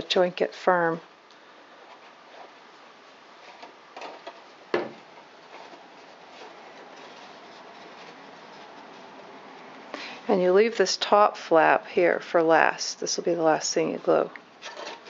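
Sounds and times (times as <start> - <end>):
paper rustling: 3.4 - 9.7.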